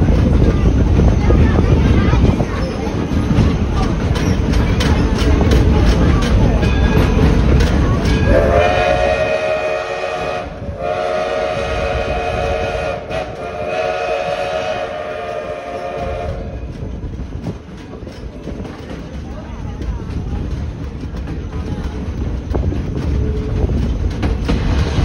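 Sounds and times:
steam locomotive whistle: 8.2 - 16.7.

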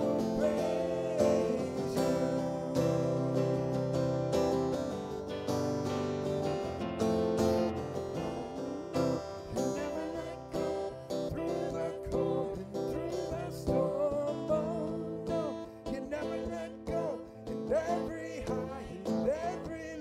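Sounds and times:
man singing into a microphone: 0.0 - 4.0, 8.2 - 20.0
strummed acoustic guitar: 0.0 - 20.0.

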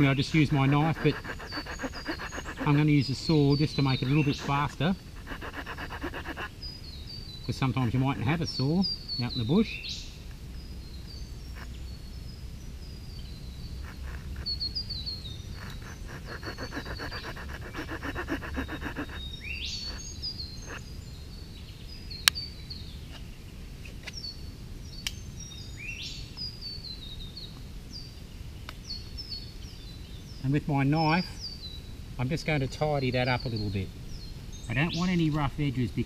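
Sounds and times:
small saw cutting wood: 0.0 - 2.9, 3.6 - 6.5, 13.9 - 14.7, 15.6 - 19.3
birds chirping: 0.0 - 23.2, 25.5 - 36.0.

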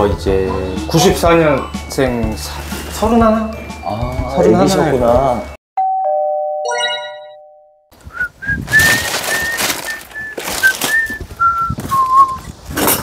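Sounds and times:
man whistling a tune: 8.1 - 12.6
parcels rustling: 8.6 - 12.2.

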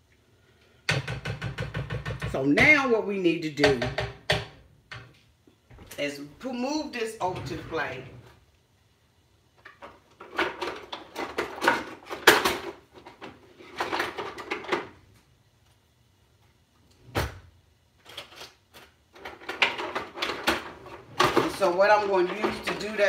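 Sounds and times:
metal utensils clattering: 18.1 - 23.0.

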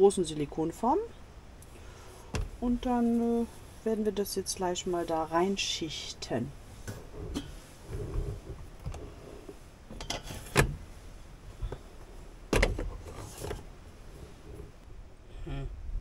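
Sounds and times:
soft rubbing and small knocks: 6.3 - 15.0.

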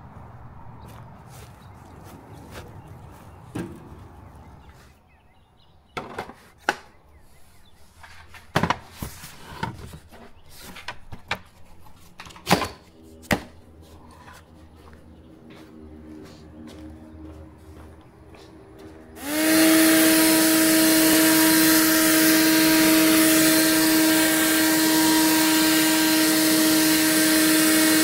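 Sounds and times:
outdoor background noise: 0.0 - 28.0.

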